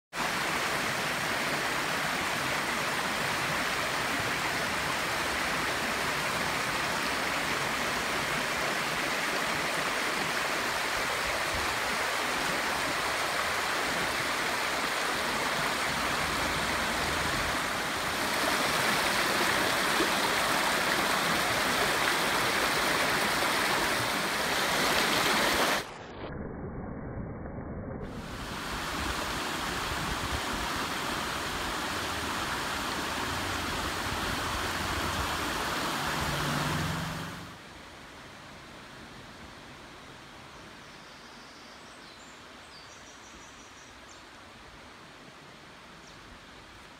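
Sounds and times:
stream rushing over stones: 0:00.1 - 0:26.0, 0:28.0 - 0:38.2.

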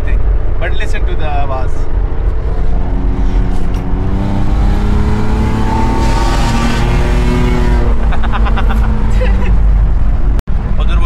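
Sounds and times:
car engine revving with blown exhaust: 0:02.4 - 0:09.4.

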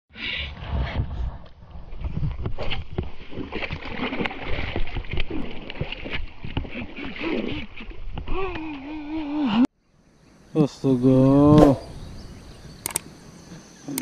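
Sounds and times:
water splashing and sloshing: 0:01.2 - 0:09.4
feet wading in water: 0:01.9 - 0:09.0
fish thrashing in water: 0:02.1 - 0:08.5.

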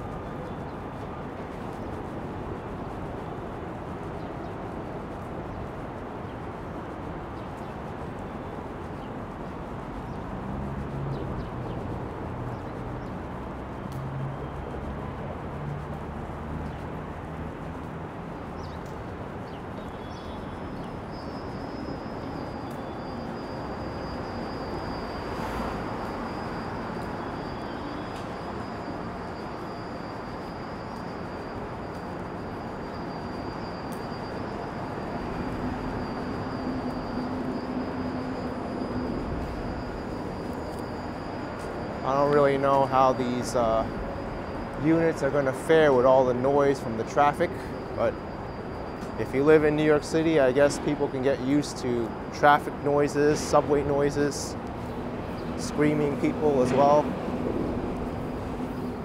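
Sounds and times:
city road traffic: 0:00.0 - 0:59.0
heavy vehicle engine hum: 0:00.0 - 0:59.0
thin high-pitched whine: 0:12.6 - 0:59.0.

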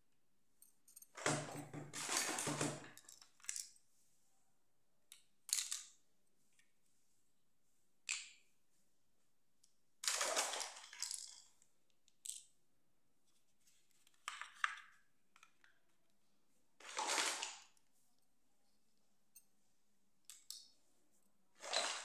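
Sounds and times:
plastic toys clattering on floor: 0:01.2 - 0:03.7.

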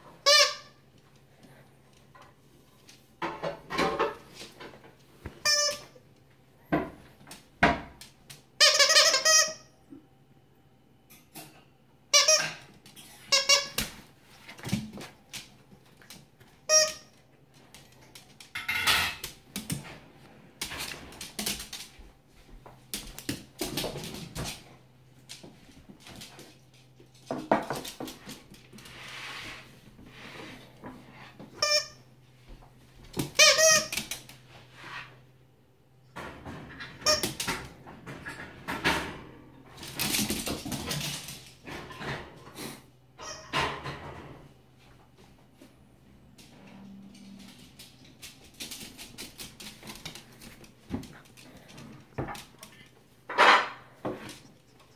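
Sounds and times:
squeaky dog toy squeaking: 0:00.2 - 0:00.7, 0:05.4 - 0:05.9, 0:08.6 - 0:09.7, 0:12.1 - 0:12.6, 0:16.7 - 0:17.1
dog scuffling: 0:45.6 - 0:54.9.

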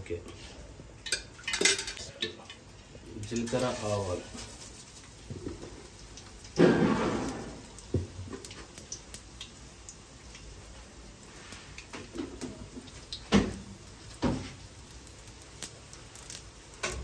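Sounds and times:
seeds sizzling in oil: 0:00.1 - 0:17.0.

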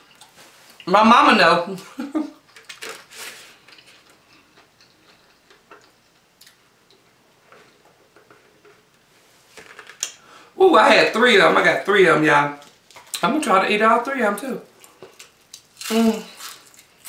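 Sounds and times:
small clicks and mouth sounds: 0:02.5 - 0:07.1.

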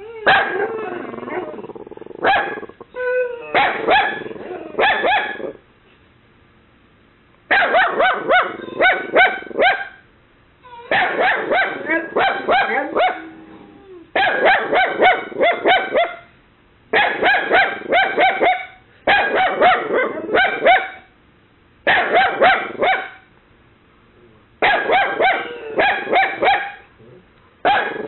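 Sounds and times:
puppy barking shrilly: 0:00.3 - 0:00.7, 0:02.2 - 0:02.8, 0:03.5 - 0:05.6, 0:07.5 - 0:10.0, 0:10.9 - 0:13.2, 0:14.2 - 0:16.3, 0:16.9 - 0:21.1, 0:21.9 - 0:23.3, 0:24.6 - 0:26.9, 0:27.6 - 0:28.0.

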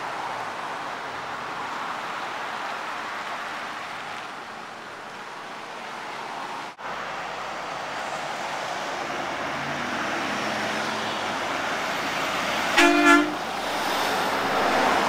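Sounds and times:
road noise: 0:00.0 - 0:15.0
vehicle horn toots: 0:12.7 - 0:13.4.

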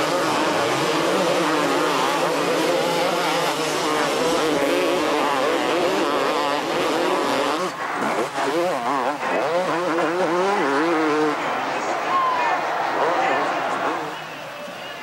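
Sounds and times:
motorcycles racing: 0:00.0 - 0:15.0.

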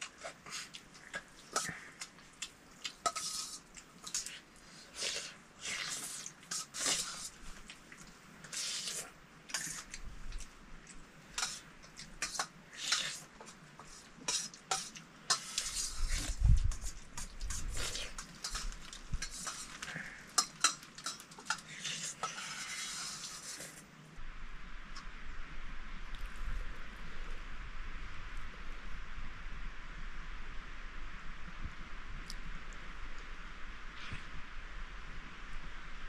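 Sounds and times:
spoons clinking on metal dishes: 0:03.0 - 0:04.3, 0:11.4 - 0:15.9, 0:16.8 - 0:22.5.

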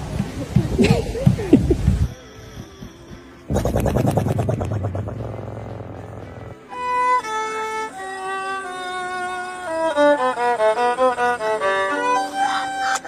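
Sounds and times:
solo violin melody: 0:01.8 - 0:03.5, 0:06.6 - 0:13.0.

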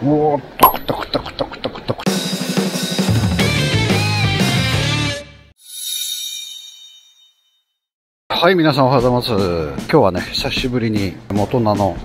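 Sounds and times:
bright high chime: 0:05.6 - 0:07.9.

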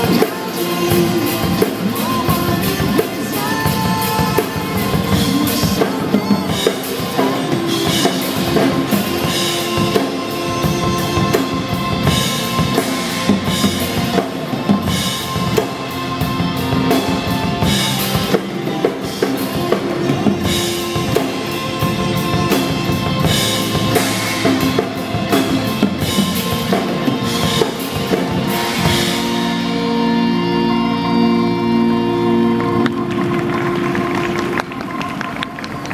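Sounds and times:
pop backing track: 0:00.0 - 0:34.2
acoustic drum kit playing: 0:00.0 - 0:34.7.

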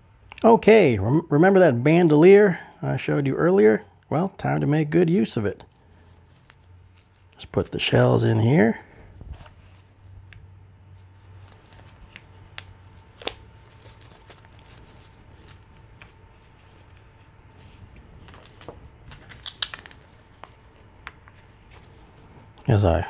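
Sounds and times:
plastic rubbing against fabric: 0:05.7 - 0:08.4, 0:09.2 - 0:22.5.

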